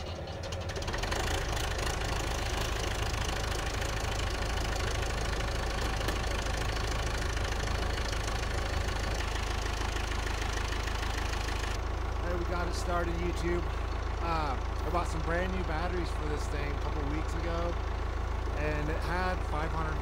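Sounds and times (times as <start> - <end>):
diesel engine running: 0.0 - 20.0.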